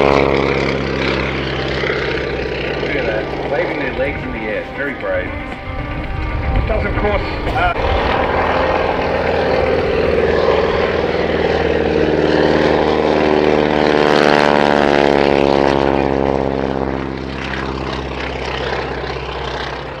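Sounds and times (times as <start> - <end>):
propeller plane engine drone: 0.0 - 20.0.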